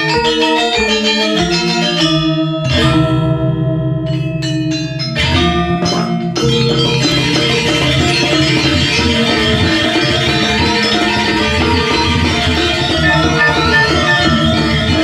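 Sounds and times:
drums: 5.2 - 15.0
metallophones ringing: 12.8 - 15.0
gongs: 12.9 - 15.0.

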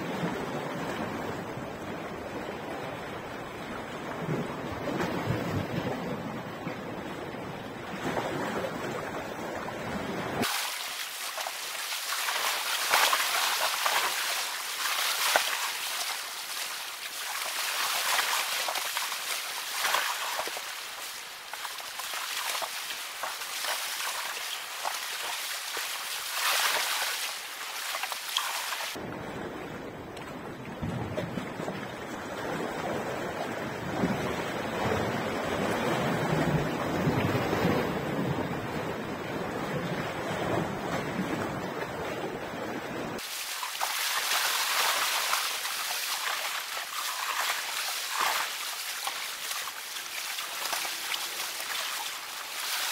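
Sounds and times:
sea waves splashing on rocks: 10.4 - 29.0, 43.2 - 52.9
wind rumble on microphone: 29.0 - 43.2.

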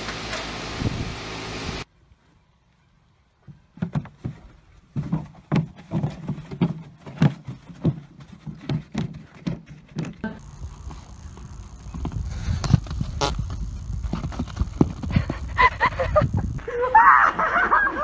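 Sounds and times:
hooves thudding on dry ground: 3.3 - 16.6.

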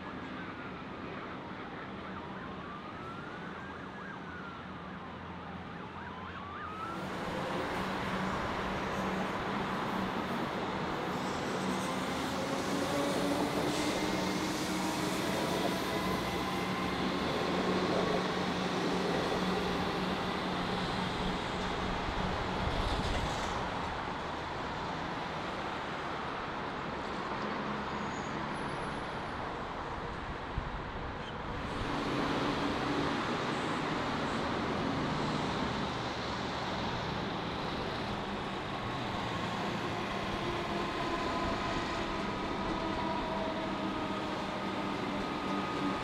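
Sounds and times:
train wheels rumbling on track: 7.0 - 25.6
train whine: 7.0 - 25.8, 31.5 - 46.0.

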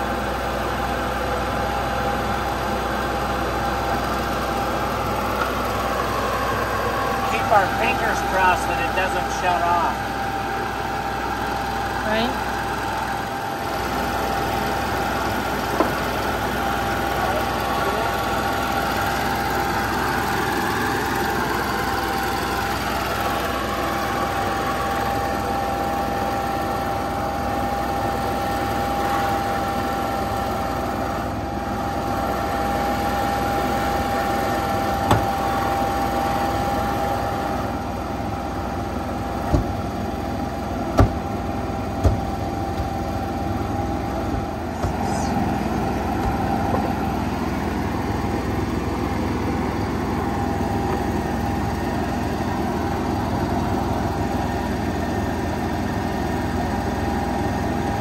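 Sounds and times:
generator running: 0.0 - 58.0
sharp knocks: 40.9 - 41.2, 42.0 - 42.9.

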